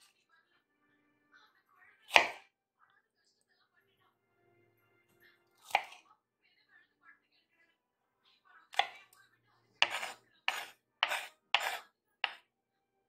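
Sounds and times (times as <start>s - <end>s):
utensil knocking on hard surface: 9.8s - 12.4s.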